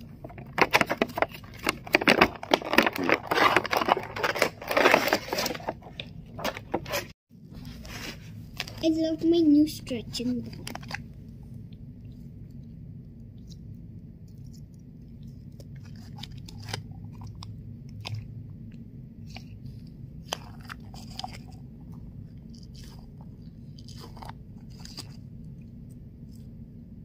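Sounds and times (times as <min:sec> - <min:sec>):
steady low hum: 0:00.0 - 0:27.0
squishy balls squelching: 0:10.1 - 0:26.6.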